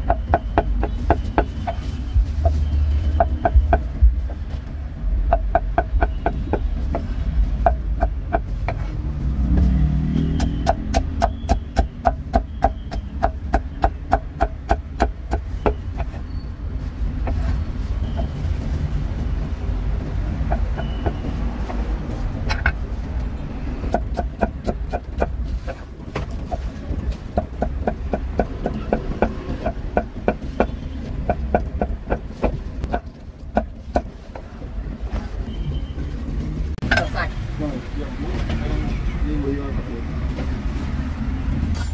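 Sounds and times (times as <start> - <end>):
low traffic rumble: 0.0 - 41.9
cleaver chopping meat: 10.0 - 15.8.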